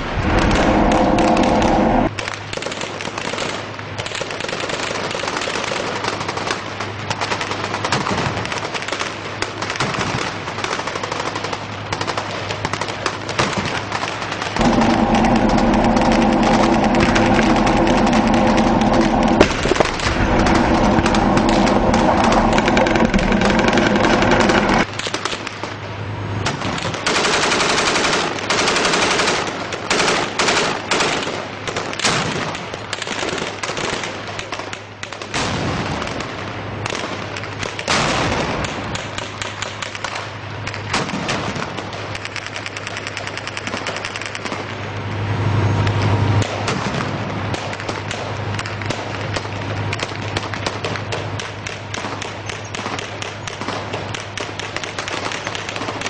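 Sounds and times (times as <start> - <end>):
armoured vehicle engine droning: 0.0 - 2.2, 14.6 - 24.9
machine-gun fire: 0.0 - 25.5, 26.5 - 34.6, 46.5 - 56.0.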